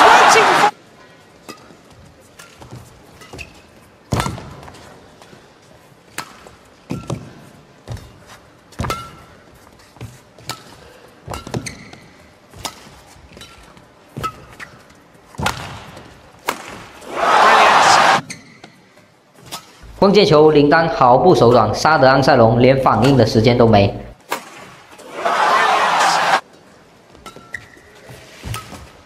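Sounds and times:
shoes squeaking on court floor: 0:01.2 - 0:15.4, 0:18.2 - 0:20.0, 0:26.6 - 0:29.0
racket hitting shuttlecock: 0:11.3 - 0:13.6, 0:15.4 - 0:17.6.

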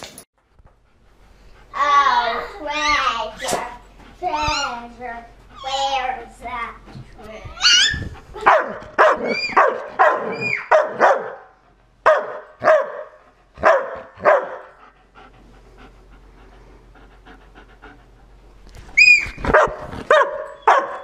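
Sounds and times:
dog squealing: 0:07.6 - 0:08.1, 0:09.2 - 0:10.7, 0:19.0 - 0:19.5
dog barking: 0:08.4 - 0:14.7, 0:19.5 - 0:21.0.

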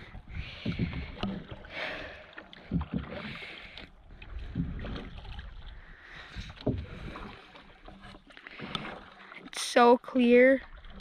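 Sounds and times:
paddle strokes swishing water: 0:00.0 - 0:11.0
low thumps: 0:00.1 - 0:01.6, 0:02.6 - 0:03.4, 0:04.3 - 0:05.4, 0:06.3 - 0:07.3.

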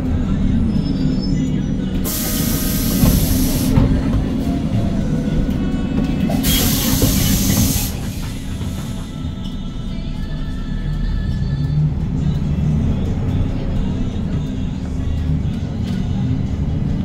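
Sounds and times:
bus engine running: 0:00.0 - 0:17.0
compressed air hiss: 0:02.0 - 0:04.6, 0:06.3 - 0:09.2.

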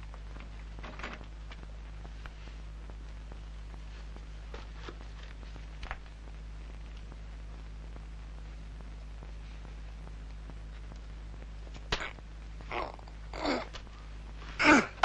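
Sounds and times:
film soundtrack hum and hiss: 0:00.0 - 0:15.0
faint clicks: 0:05.2 - 0:07.2, 0:08.8 - 0:12.2.

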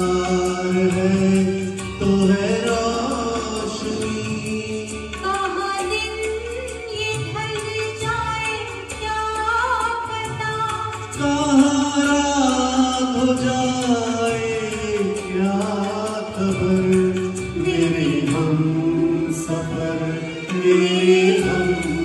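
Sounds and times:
man singing into microphone: 0:00.0 - 0:05.2, 0:11.1 - 0:22.0
instrumental accompaniment: 0:00.0 - 0:22.0.

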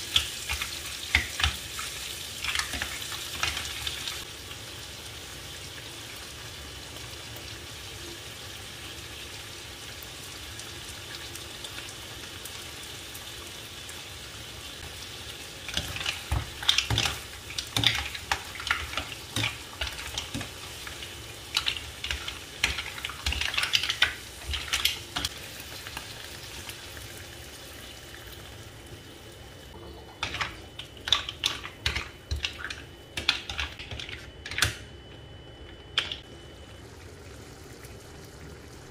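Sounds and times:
mussels sizzling in a frying pan: 0:00.0 - 0:33.8.

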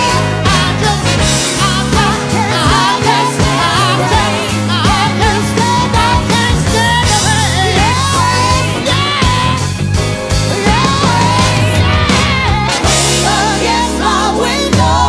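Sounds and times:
man and woman singing duet: 0:00.0 - 0:09.8, 0:10.5 - 0:15.0
blues band playing: 0:00.0 - 0:15.0
drums: 0:00.0 - 0:15.0
electric bass: 0:00.0 - 0:15.0.

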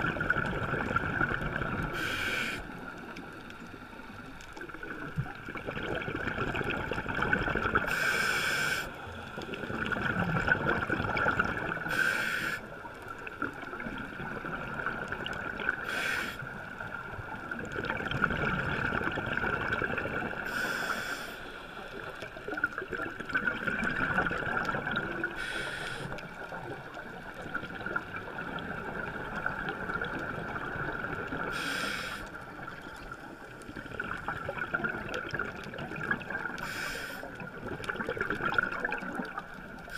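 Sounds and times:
diver breathing bubbles: 0:00.0 - 0:12.8, 0:13.9 - 0:16.7, 0:17.8 - 0:26.8, 0:27.7 - 0:33.1, 0:33.7 - 0:39.9
regulator hiss: 0:01.9 - 0:02.9, 0:07.9 - 0:09.1, 0:11.9 - 0:12.7, 0:15.8 - 0:16.5, 0:20.5 - 0:21.8, 0:25.4 - 0:26.2, 0:31.5 - 0:32.3, 0:36.6 - 0:37.3.

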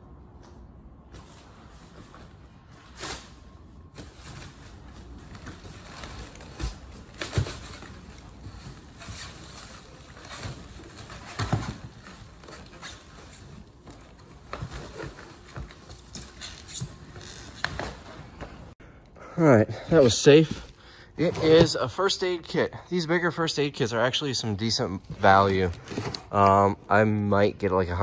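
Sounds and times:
thumps and creaks of cardboard: 0:05.3 - 0:18.5.

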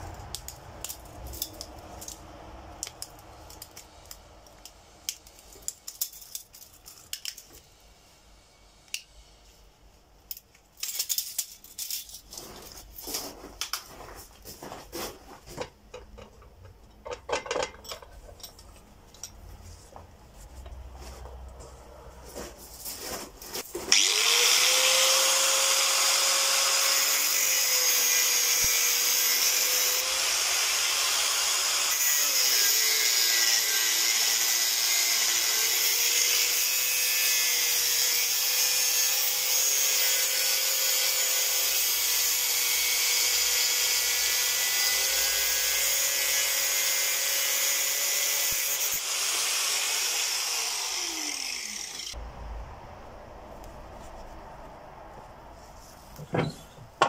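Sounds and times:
angle grinder cutting steel: 0:23.9 - 0:52.2.

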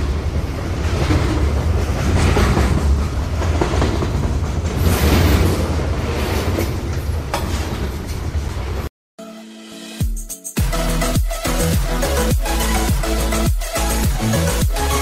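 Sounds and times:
wheels clicking over rail joints: 0:00.0 - 0:08.9.

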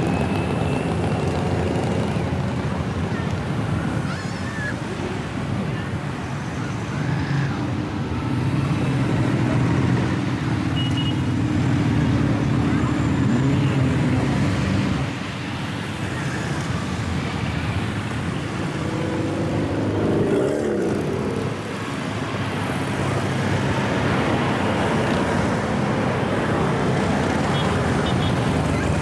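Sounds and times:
motorcycles riding slowly past: 0:11.3 - 0:29.0.

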